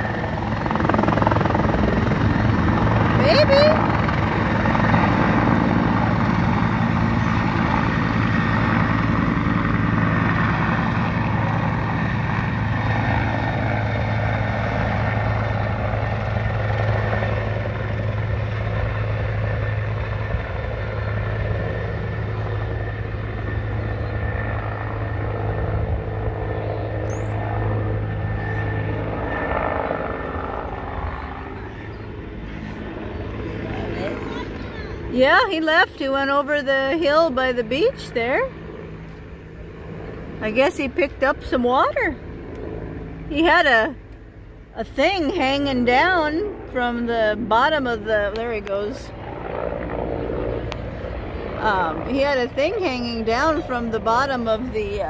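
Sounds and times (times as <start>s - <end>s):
helicopter rotor thudding: 0.0s - 23.7s.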